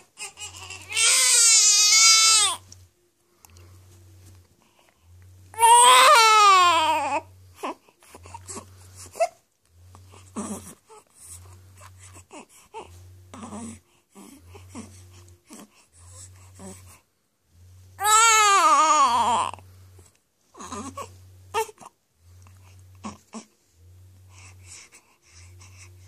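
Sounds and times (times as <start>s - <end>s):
newborn baby crying: 0.0s - 2.6s, 5.5s - 9.4s, 18.0s - 19.6s, 20.6s - 22.0s
low pulsing hum: 6.2s - 26.0s.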